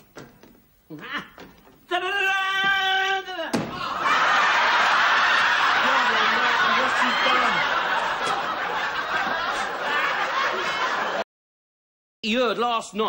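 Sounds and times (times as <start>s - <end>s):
audience laughing: 3.8s - 11.2s.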